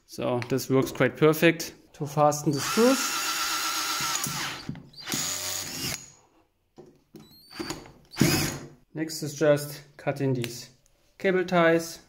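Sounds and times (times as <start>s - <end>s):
cordless drill driving screws: 2.5s - 6.2s, 7.3s - 8.7s.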